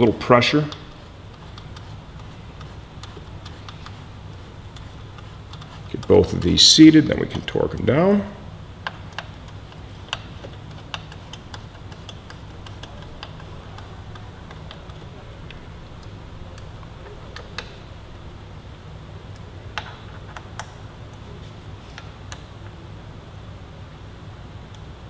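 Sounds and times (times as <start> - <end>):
steady low hum: 0.0 - 25.0
ratchet wrench clicking: 8.8 - 15.1.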